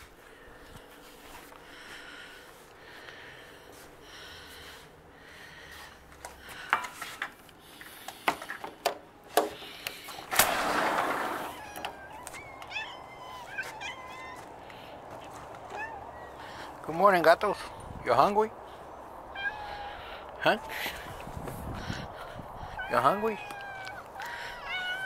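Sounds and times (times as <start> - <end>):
cats meowing: 11.2 - 16.8, 19.2 - 21.2, 22.0 - 25.0.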